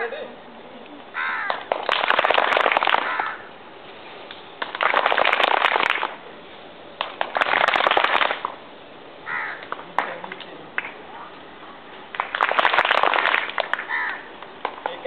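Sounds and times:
children clapping: 0:01.4 - 0:03.3, 0:04.6 - 0:06.2, 0:07.0 - 0:08.6, 0:09.6 - 0:11.0, 0:12.1 - 0:15.0.

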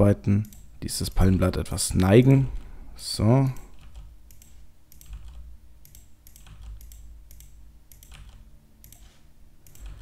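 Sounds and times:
faint low hum: 0:00.0 - 0:10.0
keyboard keys clicking: 0:03.6 - 0:10.0.

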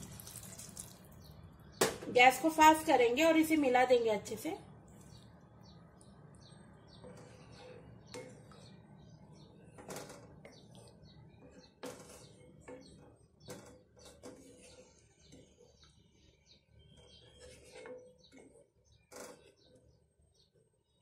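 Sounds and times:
spatula stirring curry in pan: 0:06.1 - 0:21.0.

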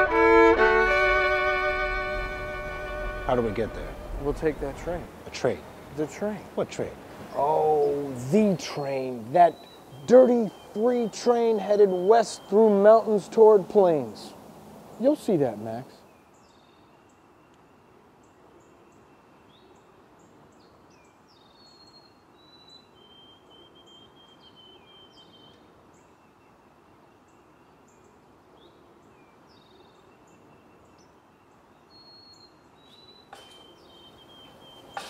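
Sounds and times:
steady background noise: 0:00.0 - 0:21.4
faint birds chirping: 0:00.0 - 0:35.0.

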